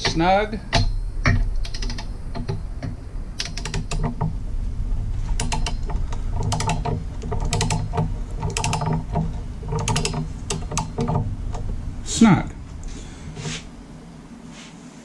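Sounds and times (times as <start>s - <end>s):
torque wrench ratchet clicking: 0.0s - 4.3s, 5.3s - 11.8s.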